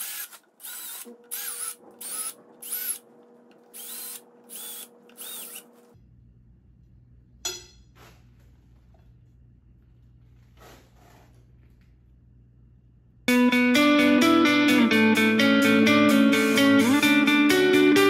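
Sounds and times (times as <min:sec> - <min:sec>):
cordless drill in short pulses: 0:03.8 - 0:05.7.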